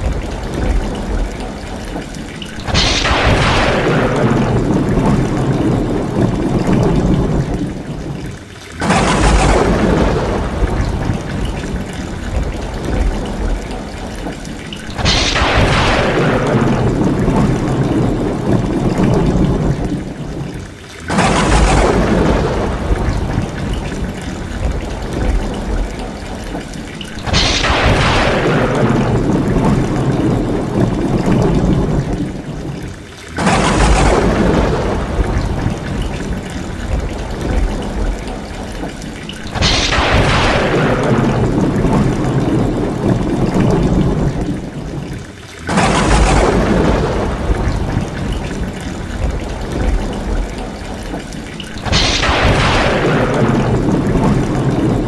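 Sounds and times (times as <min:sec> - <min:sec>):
rain pouring off roof tiles: 0:00.0 - 0:55.0
thunderclaps: 0:00.0 - 0:55.0.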